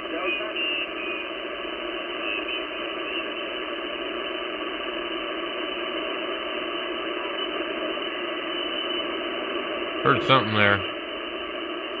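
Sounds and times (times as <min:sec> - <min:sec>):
radio static hiss: 0:10.1 - 0:10.8.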